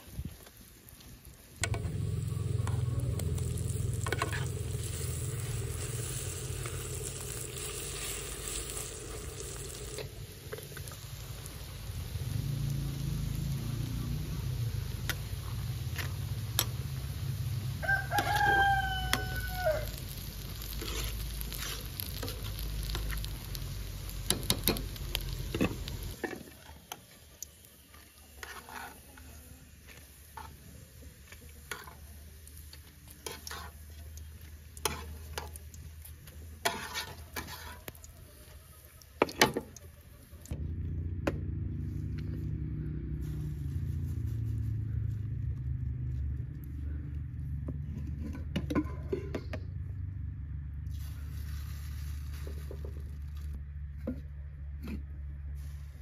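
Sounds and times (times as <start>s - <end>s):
oil sizzling: 0.5s - 39.8s, 50.9s - 53.6s
low rumble: 1.6s - 17.8s, 40.5s - 48.4s
rooster crowing: 17.7s - 20.1s.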